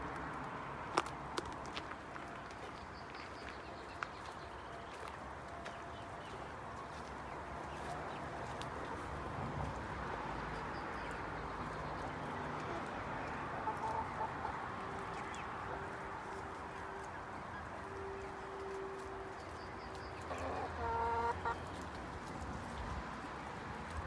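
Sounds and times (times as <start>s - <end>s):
outdoor background: 0.0s - 24.0s
chickens clucking: 5.7s - 24.0s
chicken call: 20.2s - 21.6s.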